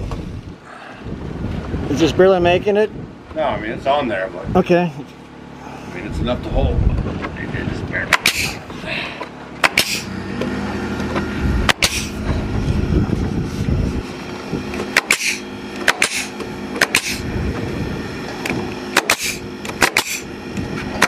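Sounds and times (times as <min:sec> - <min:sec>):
steady low hum: 0:00.0 - 0:21.0
nail gun shots: 0:08.1 - 0:08.6, 0:09.6 - 0:10.1, 0:11.7 - 0:12.1, 0:14.9 - 0:17.2, 0:18.9 - 0:20.3
exhaust air hiss: 0:08.1 - 0:09.0, 0:09.6 - 0:10.2, 0:11.3 - 0:14.4, 0:15.0 - 0:18.1, 0:19.1 - 0:20.4.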